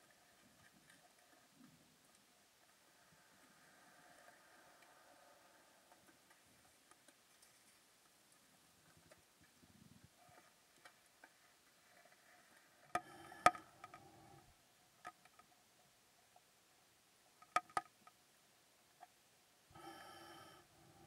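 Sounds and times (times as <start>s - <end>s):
faint hiss: 0.0s - 17.4s, 18.1s - 21.0s
underwater clicks and knocks: 12.9s - 14.1s, 17.4s - 18.2s.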